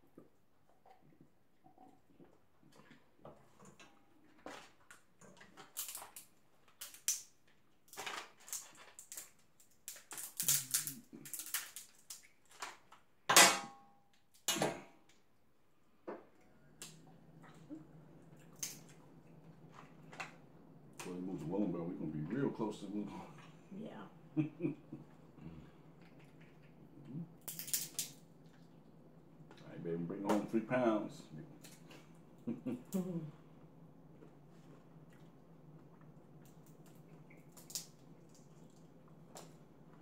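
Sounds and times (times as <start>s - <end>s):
crab shells cracking: 5.5s - 13.0s, 27.4s - 28.2s, 36.4s - 39.5s.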